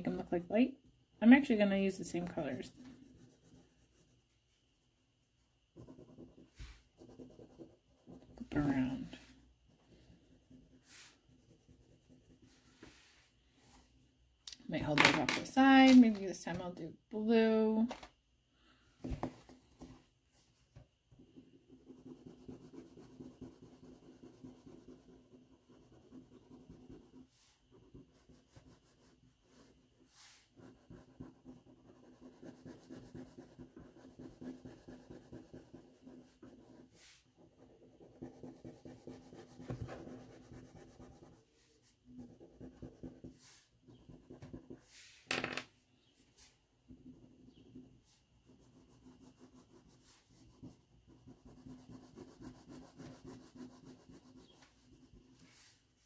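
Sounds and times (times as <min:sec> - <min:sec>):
crayon scribbling on paper: 0:01.8 - 0:04.5, 0:05.7 - 0:12.9, 0:21.3 - 0:45.0, 0:47.0 - 0:55.8.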